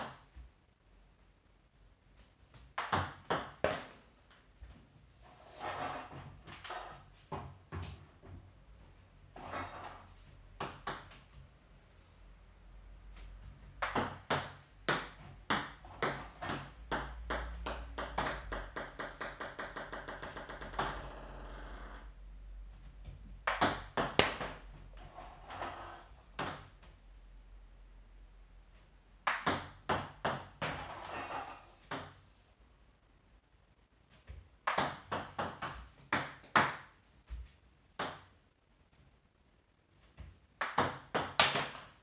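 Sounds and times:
table tennis balls clicking: 13.8 - 22.0.

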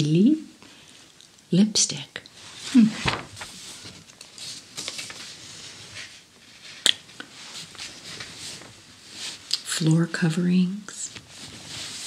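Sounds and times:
magazine pages turning: 2.5 - 6.7
paper rustling: 2.5 - 9.5, 11.1 - 12.0.

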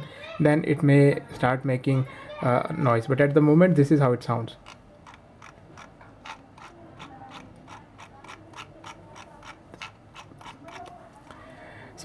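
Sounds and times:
mouse scroll wheel ticking: 4.6 - 11.0.

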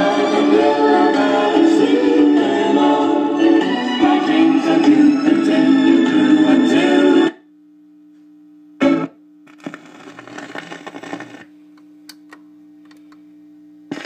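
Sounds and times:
mains hum: 0.0 - 14.0
record changer scraping and clicking: 9.5 - 11.5.

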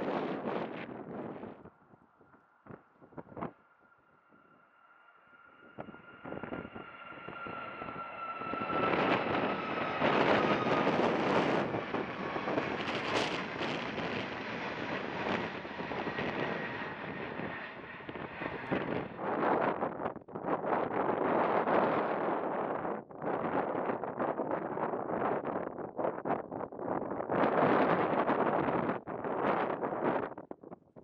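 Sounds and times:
jet engine fan whine: 4.0 - 20.0
rushing jet noise: 5.4 - 19.3.

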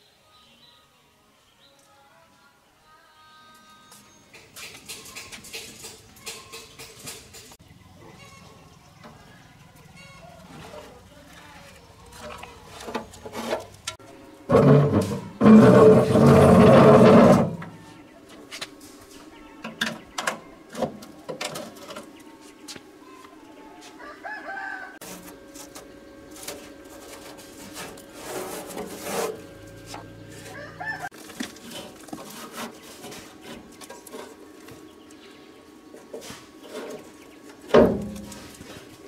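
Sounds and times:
chickens clucking: 23.8 - 37.7
rooster crowing: 24.0 - 25.0, 30.4 - 31.2.

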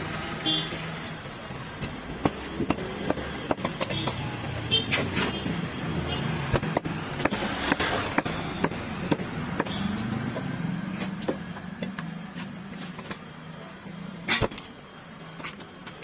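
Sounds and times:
knife chopping on wooden block: 1.8 - 4.2, 6.4 - 12.1.

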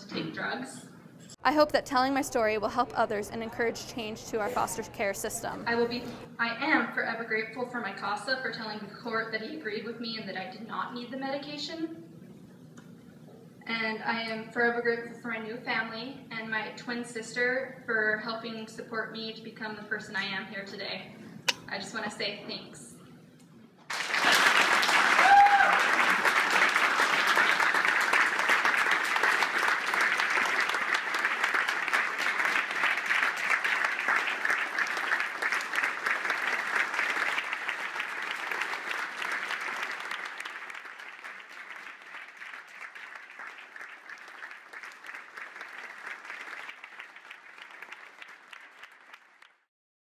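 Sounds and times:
audience applauding: 23.9 - 49.7.

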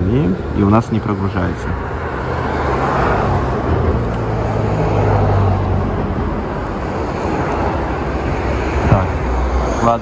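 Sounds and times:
road traffic noise: 0.0 - 10.0.

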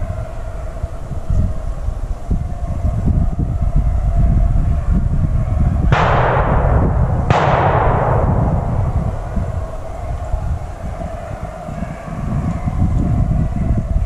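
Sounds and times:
wind rumble on microphone: 0.0 - 14.0
shotgun shots: 6.0 - 10.0.

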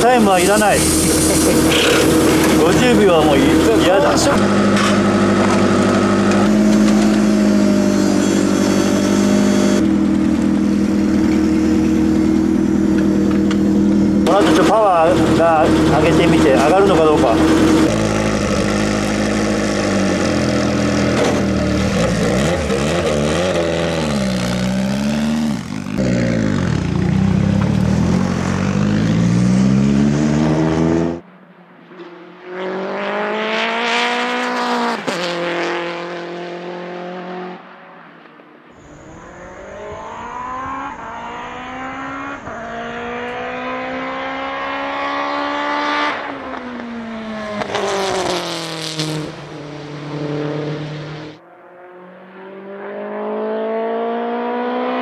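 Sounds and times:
race car engine revving: 0.0 - 31.2, 32.0 - 37.8, 38.8 - 55.0
race car passing at speed: 14.2 - 55.0.

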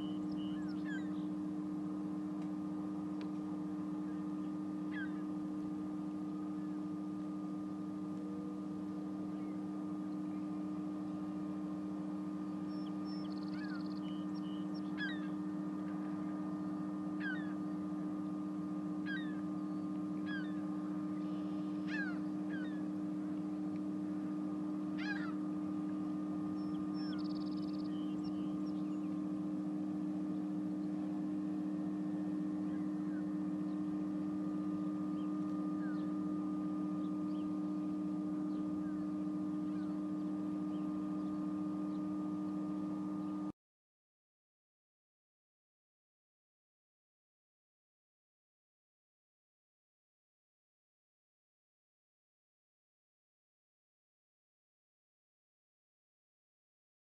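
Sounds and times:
low machinery hum: 0.0 - 43.6
short falling bird calls: 12.7 - 15.4, 17.2 - 17.6, 19.0 - 19.4, 20.2 - 20.6, 21.3 - 22.8, 25.0 - 25.4.

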